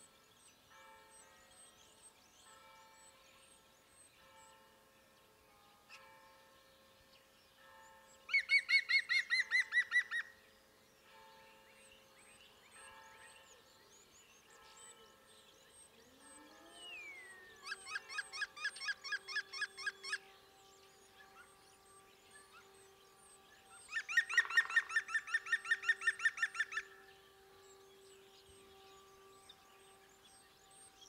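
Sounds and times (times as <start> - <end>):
woodpecker laughing call: 23.9 - 26.8.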